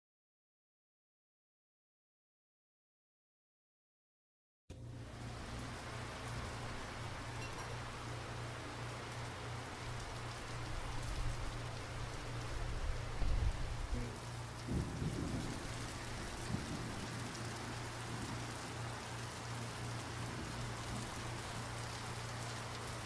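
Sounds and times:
low steady hum: 4.7s - 23.0s
steady rain falling: 4.8s - 23.0s
thunder rumble: 9.9s - 23.0s.

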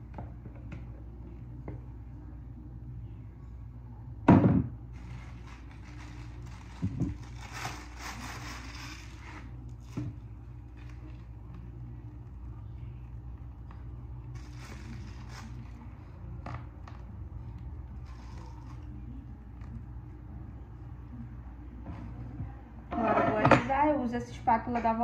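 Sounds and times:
steady low hum: 0.0s - 25.0s
plastic piping bag squishing: 5.0s - 10.0s.

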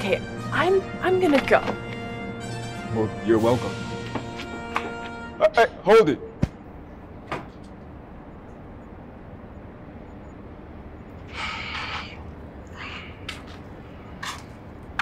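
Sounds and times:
low outdoor rumble: 5.8s - 15.0s.

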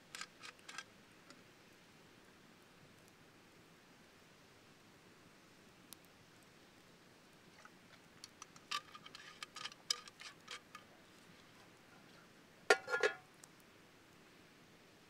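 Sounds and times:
campfire crackling and popping: 6.8s - 11.3s
metal cup knocking: 12.7s - 13.2s.

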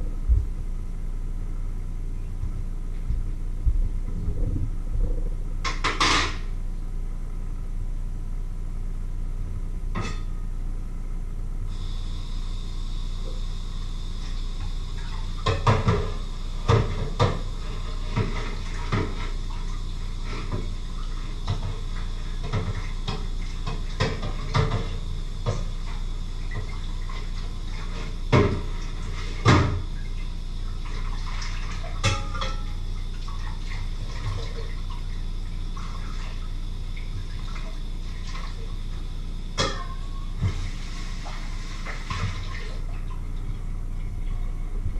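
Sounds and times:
dishes and pots clinking: 10.0s - 10.4s, 32.0s - 32.8s, 39.6s - 40.6s.

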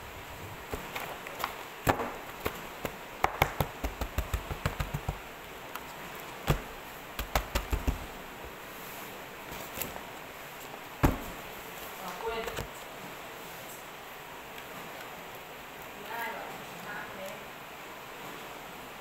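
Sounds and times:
palm slapping paper stack: 0.6s - 8.6s
paper stack knocking on desk: 1.8s - 5.3s, 6.5s - 8.2s, 11.0s - 11.4s.

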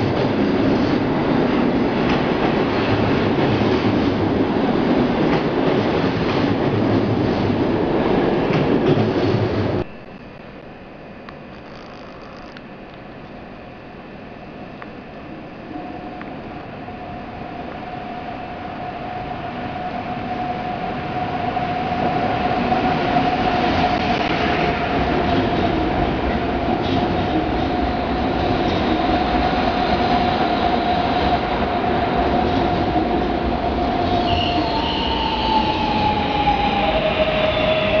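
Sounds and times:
high-pitched train whine: 0.0s - 38.0s.

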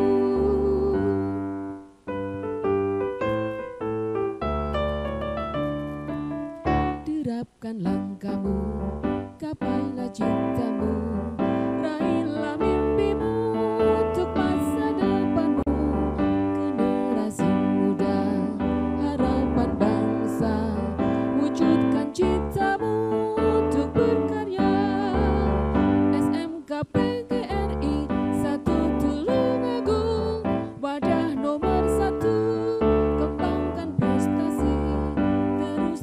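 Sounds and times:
march on electric keyboard: 0.0s - 7.1s.

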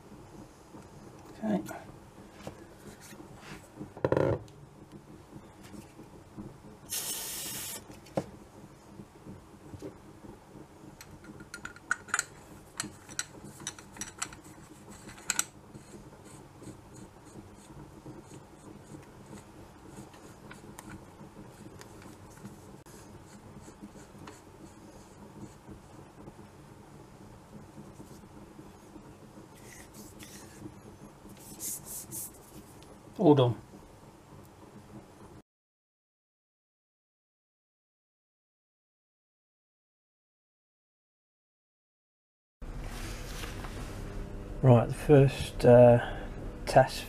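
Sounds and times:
aerosol spray hiss: 6.9s - 7.9s
cloth rubbing on metal: 31.3s - 32.7s, 42.6s - 44.2s.

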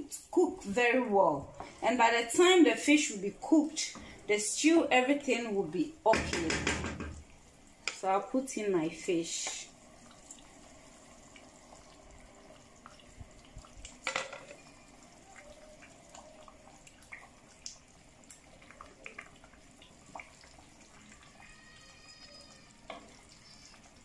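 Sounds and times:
stew bubbling in a pot: 0.0s - 24.0s
wet plops and drips: 15.9s - 21.2s.

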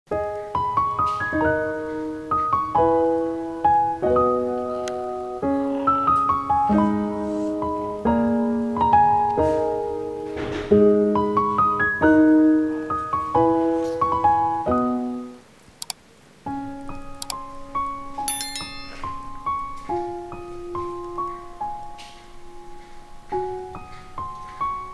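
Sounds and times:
piano music: 16.6s - 24.9s.

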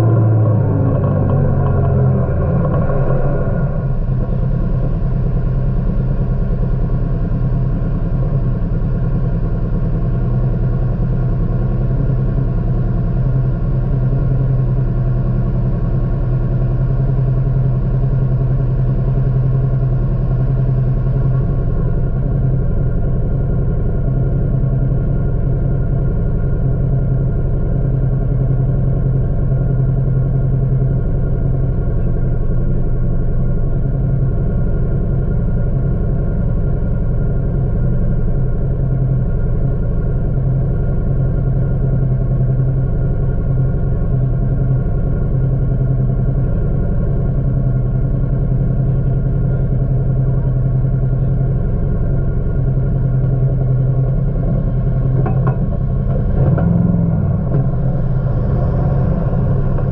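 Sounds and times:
utility vehicle engine running: 0.0s - 59.9s.

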